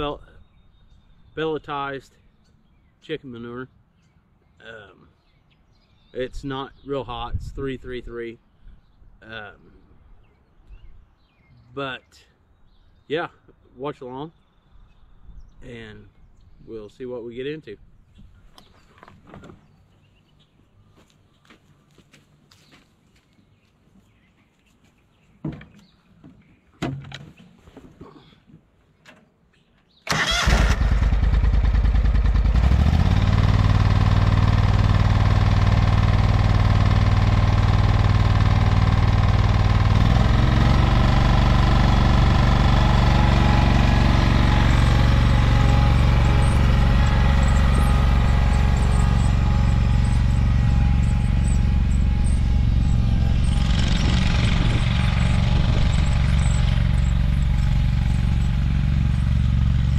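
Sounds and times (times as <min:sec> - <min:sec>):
tractor engine cranking and running: 0:30.0 - 0:59.9.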